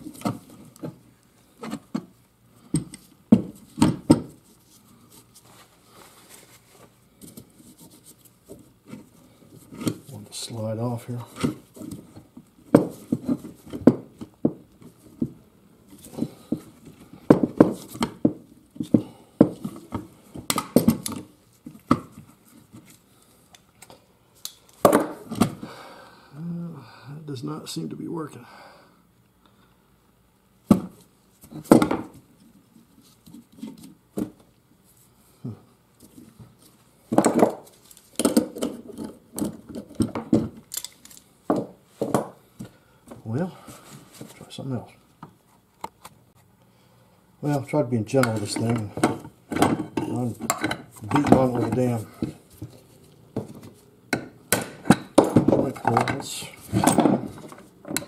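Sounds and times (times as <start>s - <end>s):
metal parts and tools clinking: 40.6s - 41.3s, 54.9s - 58.0s.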